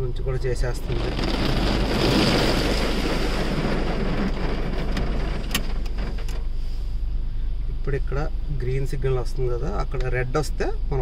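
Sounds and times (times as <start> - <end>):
car wash water jets spraying: 0.3 - 6.8.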